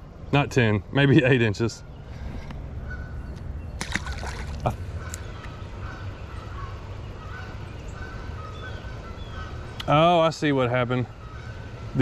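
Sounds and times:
faint bird calls: 1.8s - 12.0s
fish splashing in water: 3.8s - 4.7s.

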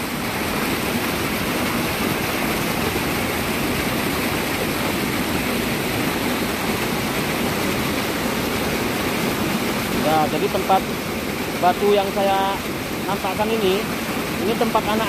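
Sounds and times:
water rushing below a dam: 0.0s - 15.0s.

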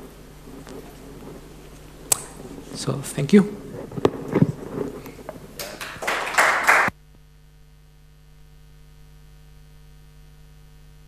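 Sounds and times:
electrical mains hum: 0.0s - 11.0s
audience clapping: 5.0s - 7.0s.

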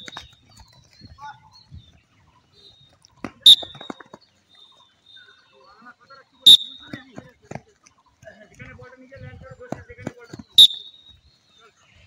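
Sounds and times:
sharp sports whistle blast: 3.4s - 4.0s, 6.4s - 6.9s, 10.6s - 11.2s.

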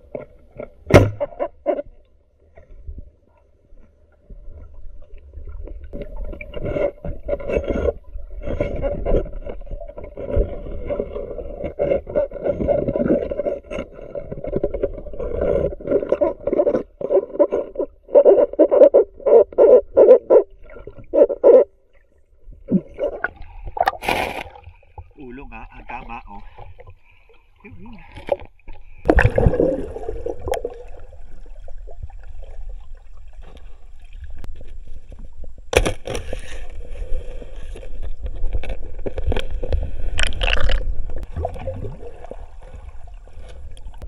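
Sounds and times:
sharp knock underwater: 0.9s - 1.4s.

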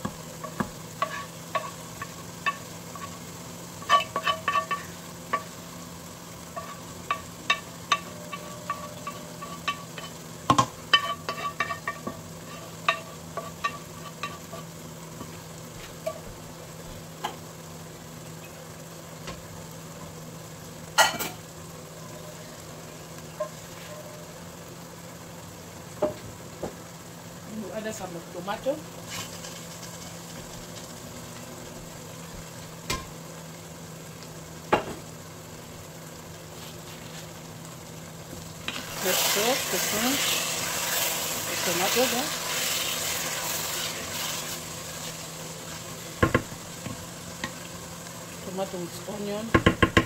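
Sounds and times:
oil popping and crackling: 0.0s - 17.5s, 28.6s - 50.0s
food sizzling in hot oil: 0.0s - 50.0s.

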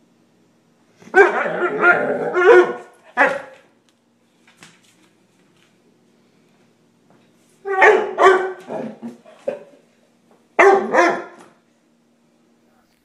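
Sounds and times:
dog barking: 1.1s - 3.6s, 7.7s - 9.7s, 10.6s - 11.5s
dog yipping: 7.7s - 8.6s, 10.6s - 11.4s.

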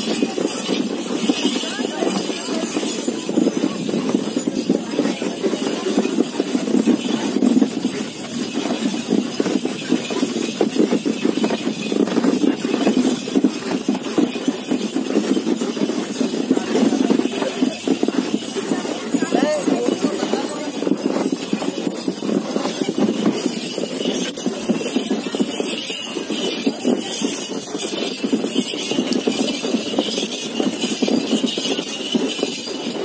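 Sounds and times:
cart rumbling and rattling: 0.0s - 33.0s.

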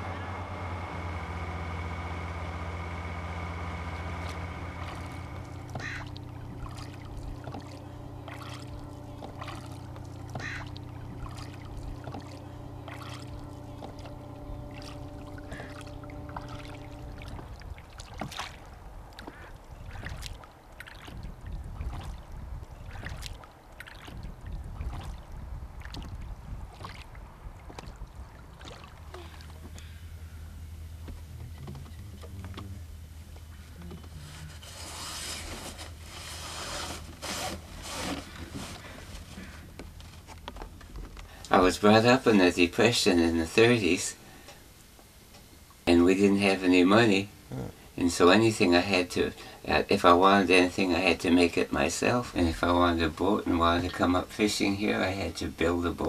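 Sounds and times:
boat engine hum: 0.0s - 56.0s
oars knocking and creaking: 0.7s - 42.3s.

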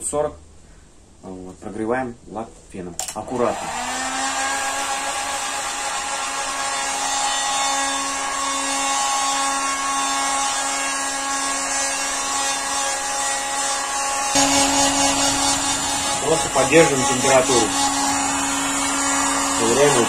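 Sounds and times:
heat gun whine and hiss: 13.6s - 20.0s.

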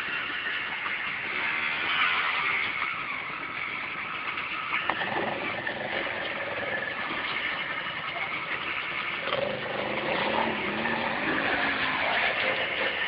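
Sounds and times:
quad bike engine revving: 4.8s - 13.0s.

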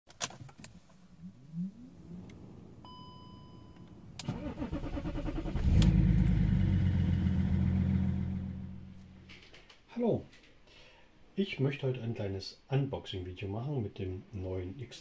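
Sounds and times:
car engine idling: 0.8s - 9.3s
short electronic beep: 2.8s - 3.8s.

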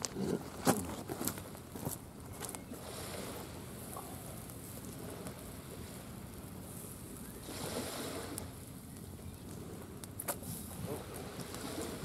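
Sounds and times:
small sea waves washing on shore: 2.4s - 12.0s.

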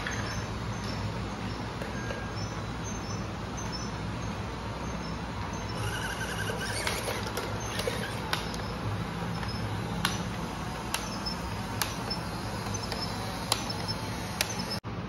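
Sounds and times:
toy electric motor humming: 5.0s - 14.8s.

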